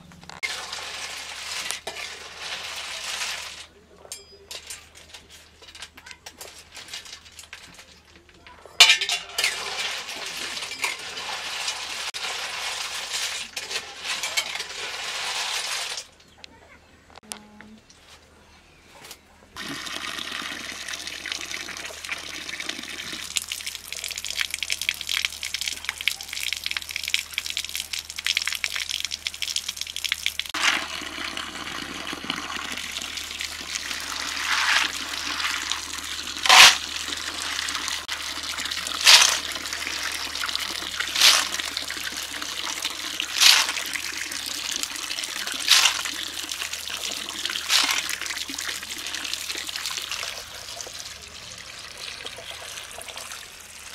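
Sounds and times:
tap water running into metal basin: 8.8s - 16.0s, 19.6s - 53.9s
water swishing in basin: 30.5s - 50.2s.

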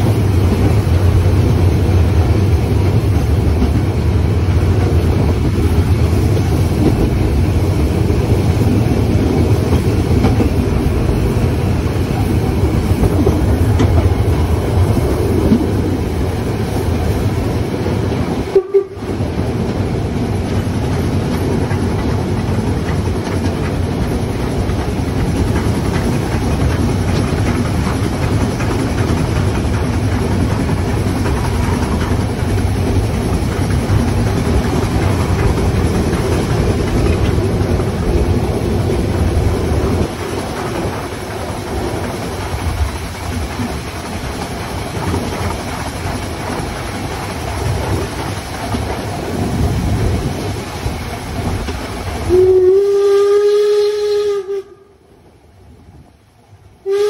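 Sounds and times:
steam train rumbling: 0.0s - 57.0s
steam whistle blast: 18.5s - 19.1s, 52.3s - 54.9s.

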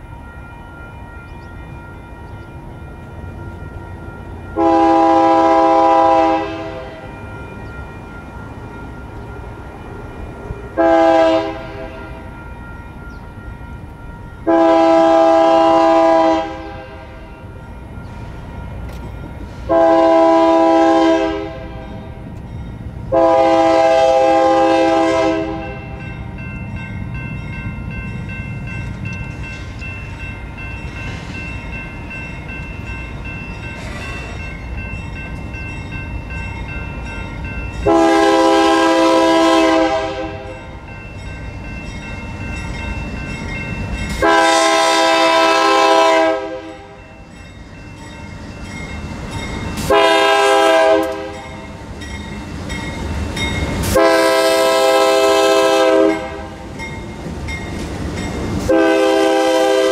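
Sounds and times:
low rumble of approaching train: 0.0s - 59.9s
locomotive air horn blasts: 4.6s - 7.1s, 10.8s - 12.2s, 14.5s - 17.3s, 19.6s - 22.0s, 23.1s - 25.8s, 37.8s - 40.5s, 44.1s - 47.0s, 49.8s - 51.4s, 53.8s - 56.7s, 58.7s - 59.9s.

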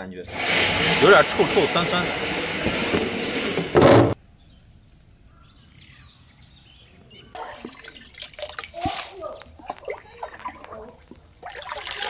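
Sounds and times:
faint bird calls: 4.2s - 7.6s
water sloshing and dripping: 7.3s - 12.0s.

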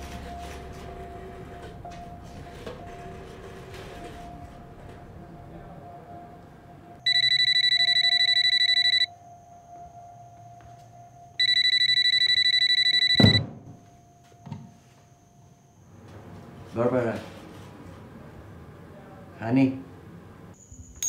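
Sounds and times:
telephone bell ringing: 7.0s - 13.4s.

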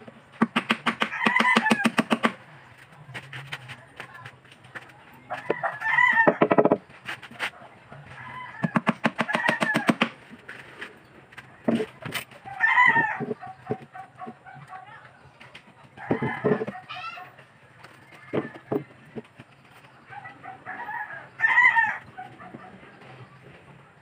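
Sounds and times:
rooster crowing: 5.4s - 6.5s, 8.1s - 10.0s, 12.4s - 13.4s, 16.0s - 17.2s, 20.2s - 22.6s
hammer knocking on plywood: 6.2s - 6.8s, 16.1s - 16.8s.

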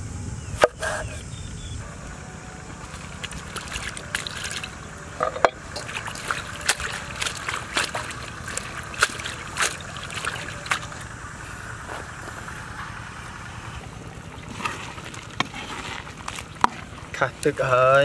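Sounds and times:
hands sloshing slices in water: 2.8s - 4.8s, 5.7s - 11.1s, 14.2s - 17.4s.

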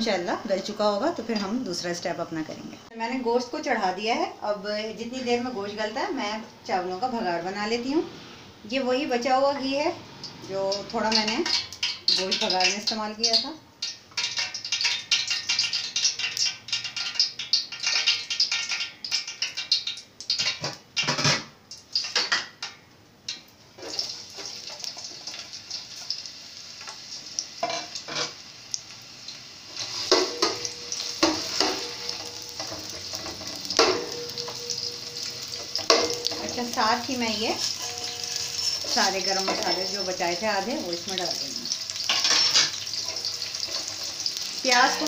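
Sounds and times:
hot oil crackling and sizzling: 0.0s - 45.0s
metal spoon scraping a pot: 29.8s - 40.3s, 41.9s - 45.0s.

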